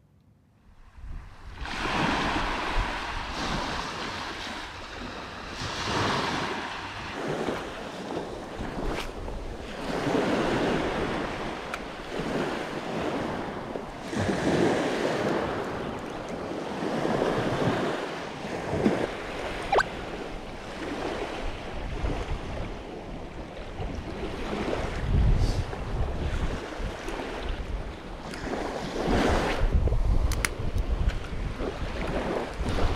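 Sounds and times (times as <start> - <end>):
wind on microphone: 0.7 - 32.9
small waves breaking on beach: 0.8 - 32.9
sharp click: 30.2 - 30.6.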